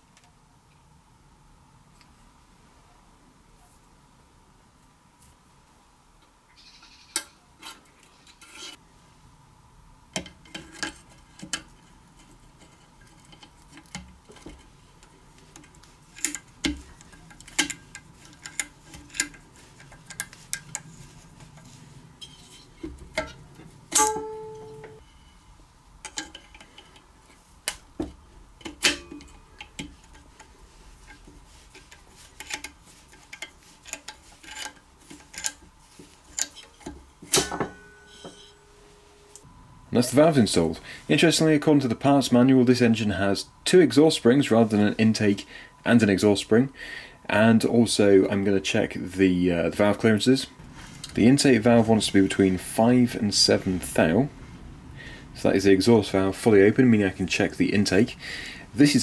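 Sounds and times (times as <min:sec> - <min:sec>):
short metal ringing note: 0:23.9 - 0:25.4, 0:37.4 - 0:39.3.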